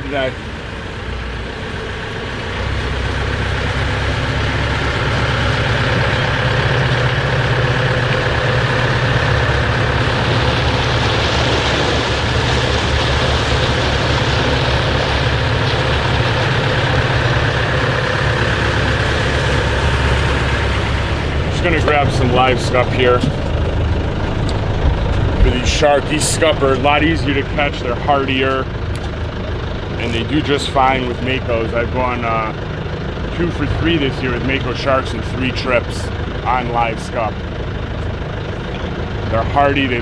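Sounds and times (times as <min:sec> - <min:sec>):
wind and water rushing: 0:00.0 - 0:28.4
boat engine running: 0:00.0 - 0:40.0.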